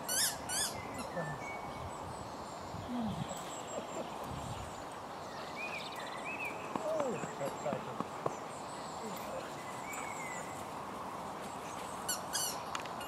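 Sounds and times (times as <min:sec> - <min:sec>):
sharp high chirping calls: 0:00.0 - 0:01.8.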